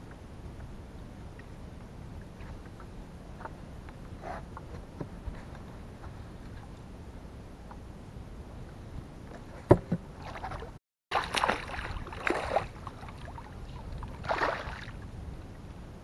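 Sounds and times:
fish splashing at surface: 11.1s - 12.8s.

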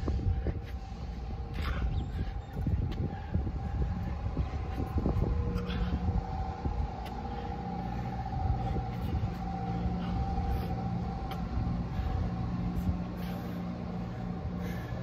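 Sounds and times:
high machine whine: 0.0s - 15.0s
low machine drone: 0.0s - 15.0s
low rumble: 0.0s - 15.0s.

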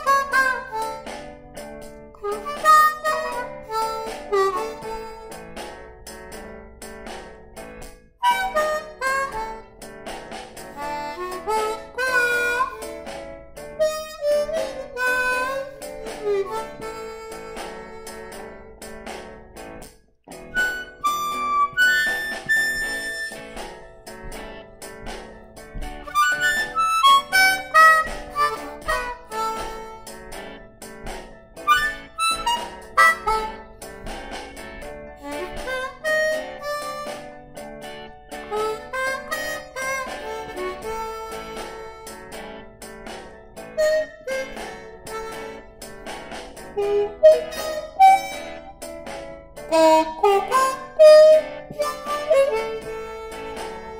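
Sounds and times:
blues harmonica: 0.0s - 53.9s.

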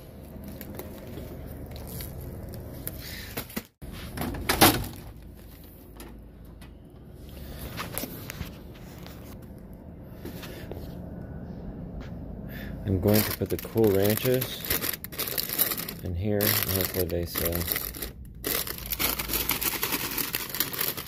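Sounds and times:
vending machine handling noise: 3.3s - 6.8s.

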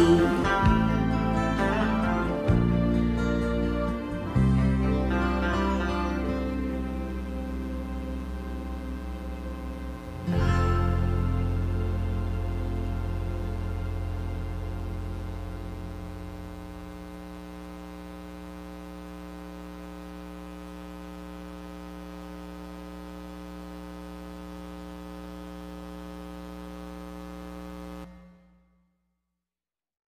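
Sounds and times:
sustained backing track chord: 0.0s - 17.9s.

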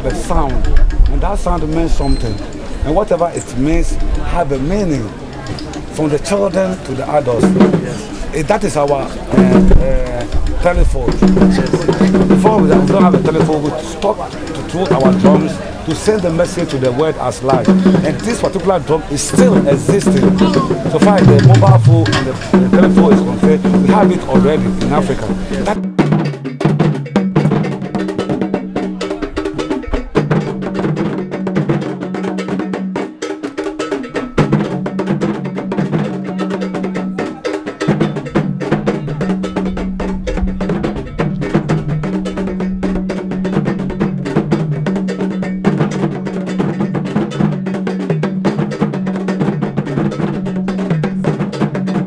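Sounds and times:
rapid drum percussion: 0.0s - 52.0s
low bass line: 19.0s - 25.9s.

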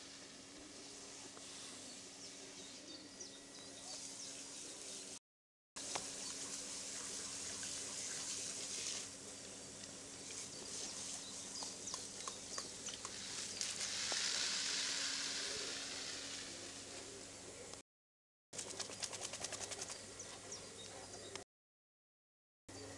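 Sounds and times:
fine water spray hissing: 1.1s - 2.0s, 5.8s - 9.6s, 10.2s - 12.1s, 12.7s - 17.2s.

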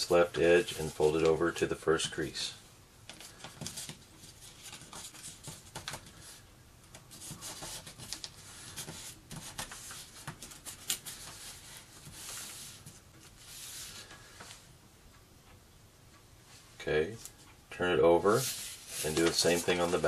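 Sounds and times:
paper crinkling and rustling: 3.1s - 14.2s, 18.3s - 20.0s.

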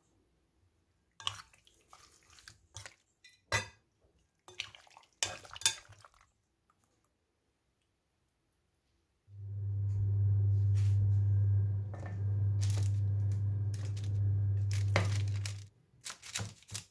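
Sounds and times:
wet mixing sounds: 1.1s - 7.2s, 11.9s - 16.9s
utensils clinking on glass bowl: 13.8s - 15.6s.

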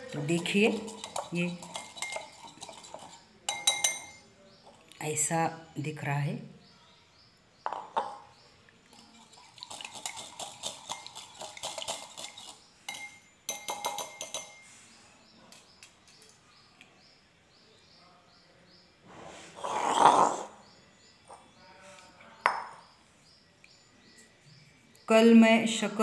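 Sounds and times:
wire whisk clinking against glass bowl: 0.2s - 4.2s, 9.2s - 14.6s.

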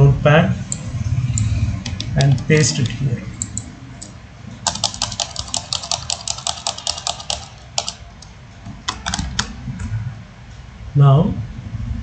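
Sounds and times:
keyboard key tapped rapidly: 4.6s - 8.3s, 8.9s - 9.6s.

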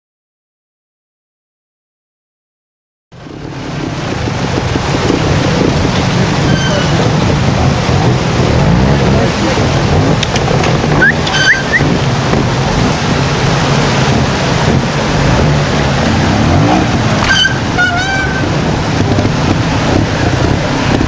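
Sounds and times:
motorcycle engine revving: 3.2s - 21.0s
stream water rushing: 3.2s - 21.0s
short high chirps: 11.0s - 11.9s.

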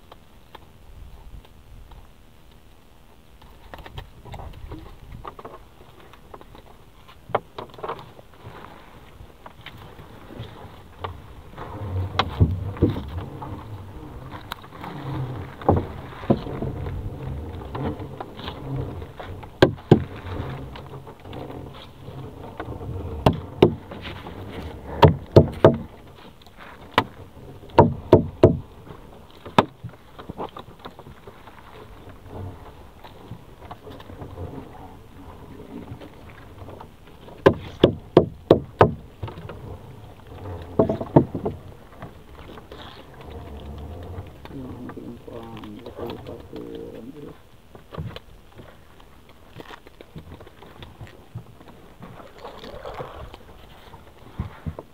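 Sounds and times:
low steady rumble: 0.0s - 54.9s
net floats knocking on wooden hull: 14.4s - 26.0s, 26.9s - 28.7s, 37.2s - 39.7s, 40.5s - 43.2s.

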